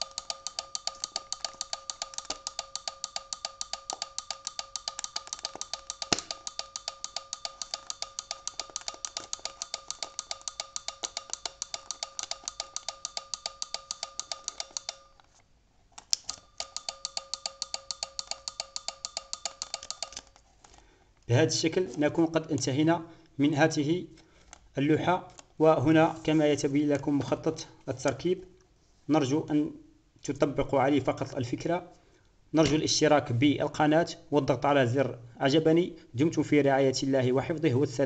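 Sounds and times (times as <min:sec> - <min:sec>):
turn signal relay clicking: 0:00.0 - 0:15.2, 0:16.0 - 0:20.3.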